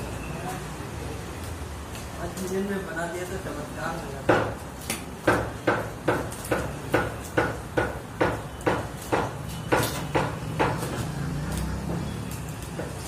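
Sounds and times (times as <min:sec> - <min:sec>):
sharp rhythmic knocks: 0:04.2 - 0:11.0.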